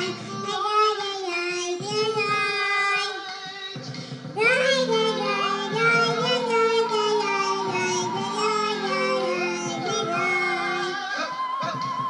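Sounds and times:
held chords: 0:04.3 - 0:11.2
high wavering vocal melody: 0:04.4 - 0:11.9.

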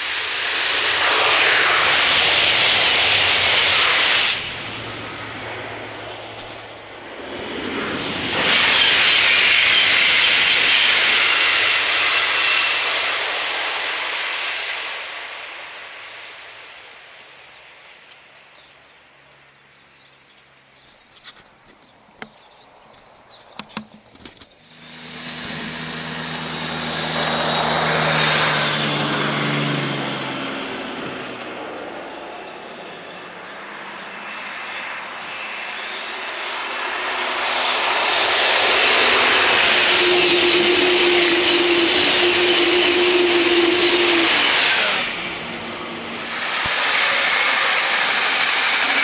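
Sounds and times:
passing vehicle roar: 0:00.0 - 0:16.0, 0:24.6 - 0:49.0
steady humming tone: 0:00.1 - 0:08.6, 0:24.6 - 0:29.8, 0:30.5 - 0:49.0.

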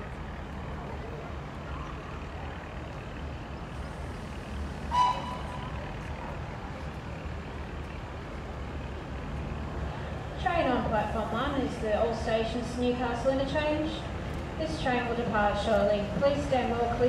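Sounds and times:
diesel railcar rumbling: 0:00.0 - 0:17.0
railcar horn toot: 0:04.9 - 0:06.0.

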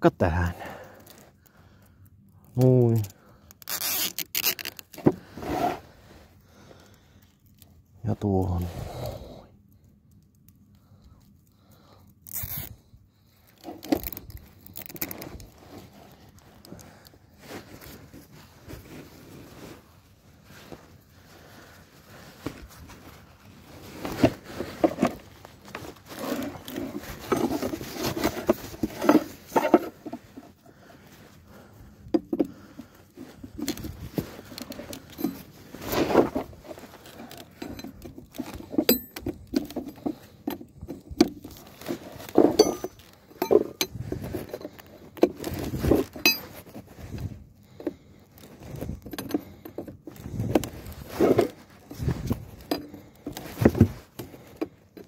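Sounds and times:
metal tools clinking and rattling: 0:34.8 - 0:35.5, 0:37.3 - 0:41.1, 0:42.2 - 0:44.7, 0:46.0 - 0:46.6.

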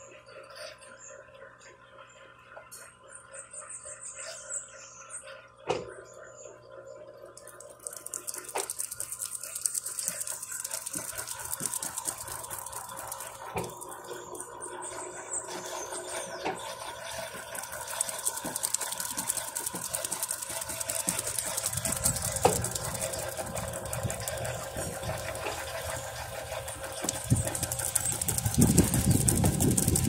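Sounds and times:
washing machine spinning: 0:04.6 - 0:30.0
water trickling: 0:16.6 - 0:30.0.

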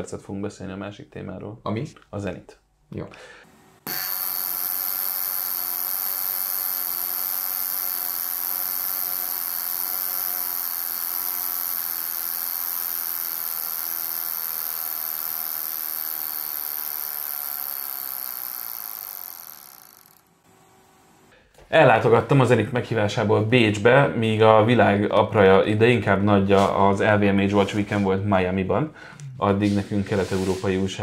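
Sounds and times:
wristwatch alarm buzzing: 0:03.8 - 0:20.3.

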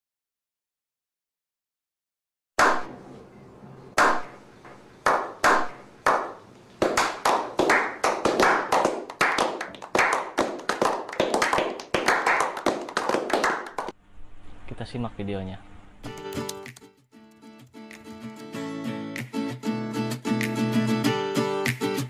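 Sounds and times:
men slow clapping into applause: 0:05.1 - 0:13.9.

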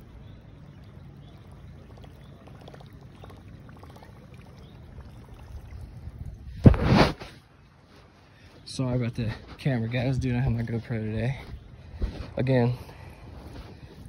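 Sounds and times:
fishing lure reeled across water: 0:00.0 - 0:07.5.

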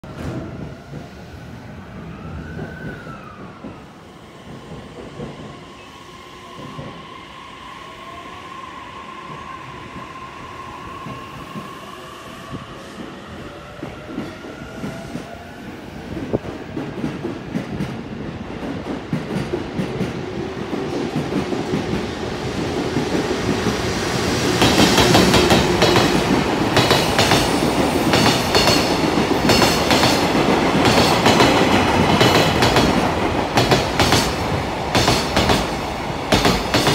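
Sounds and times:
freight train rumble: 0:09.2 - 0:36.9.

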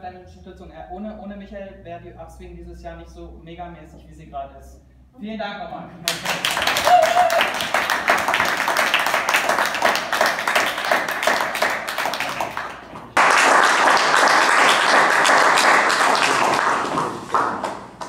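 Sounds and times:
audience applauding: 0:06.1 - 0:18.0.

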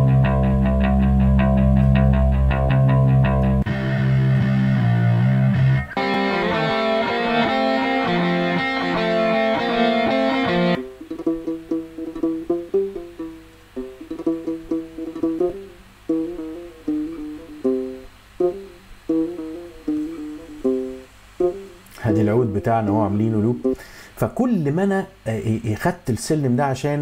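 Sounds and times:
rock guitar loop: 0:00.0 - 0:22.8
plucked lute melody: 0:05.6 - 0:22.6.

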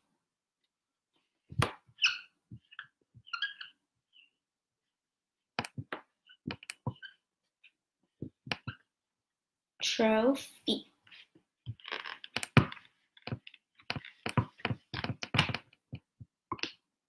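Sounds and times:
marker writing on whiteboard: 0:01.5 - 0:04.4, 0:05.6 - 0:07.2, 0:11.1 - 0:16.8.

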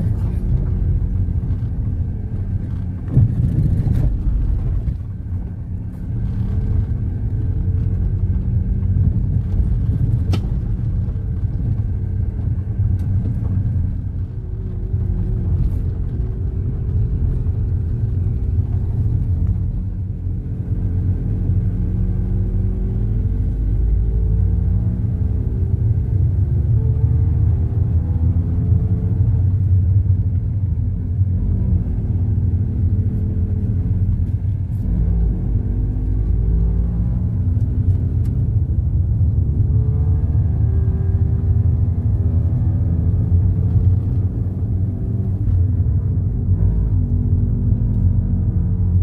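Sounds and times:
car engine and tyres rumbling: 0:00.0 - 0:49.0.

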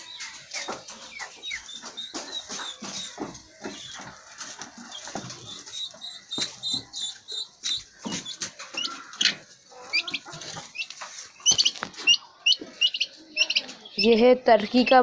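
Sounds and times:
chicks peeping: 0:00.0 - 0:15.0
rustling: 0:02.1 - 0:12.8.

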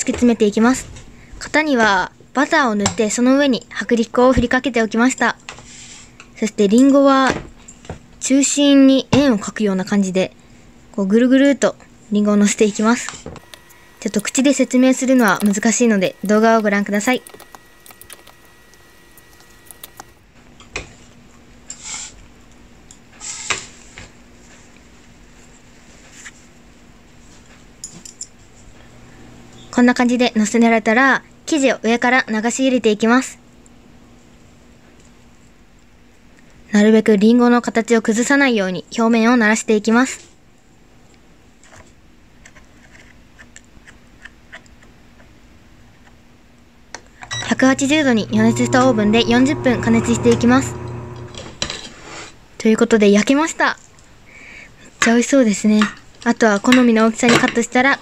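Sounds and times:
low steady hum: 0:13.4 - 0:20.2, 0:47.2 - 0:51.8.

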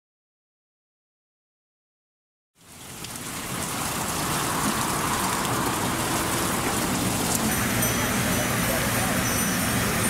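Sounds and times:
fountain water splashing: 0:02.6 - 0:10.0.

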